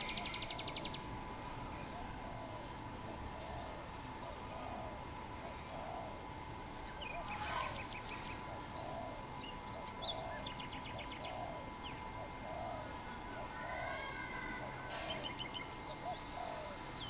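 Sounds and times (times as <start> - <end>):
dove cooing: 0.0 - 0.9, 1.7 - 17.0
small birds chirping rapidly: 0.0 - 1.1, 5.6 - 14.0, 14.9 - 17.0.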